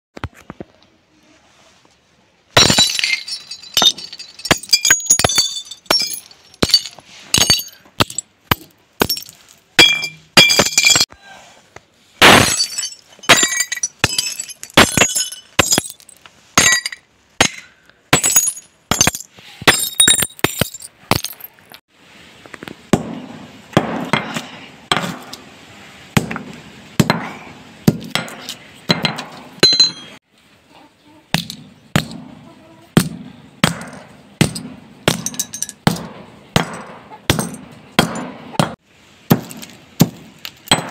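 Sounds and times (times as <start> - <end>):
broken glass crunching: 2.6 - 11.1, 12.2 - 21.8
hammer smashing glass bottles: 2.6 - 11.1, 12.2 - 21.5, 33.7 - 40.9.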